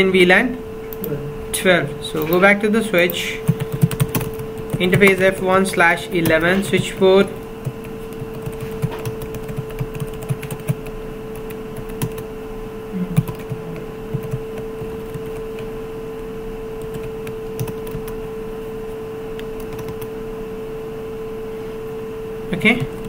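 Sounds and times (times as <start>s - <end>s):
steady low hum: 0.0s - 23.0s
computer keyboard typing: 2.1s - 2.4s, 3.0s - 12.3s, 13.2s - 15.8s, 16.8s - 20.2s, 22.5s - 23.0s.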